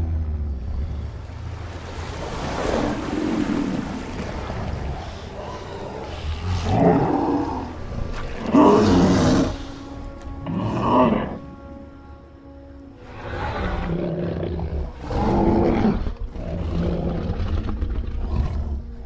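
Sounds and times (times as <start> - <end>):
steady low rumble: 0.0 - 8.2.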